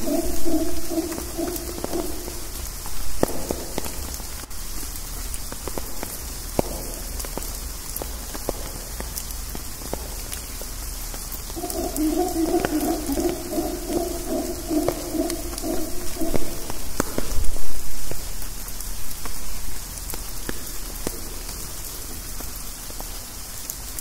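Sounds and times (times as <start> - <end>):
howler monkey roar: 0.0 - 3.3, 11.5 - 17.3
drops striking leaves: 0.0 - 24.0
steady hiss of rain: 0.0 - 24.0.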